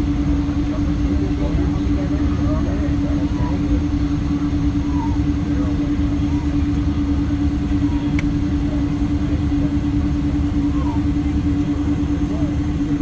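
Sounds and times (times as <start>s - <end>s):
airliner cabin engine rumble: 0.0s - 13.0s.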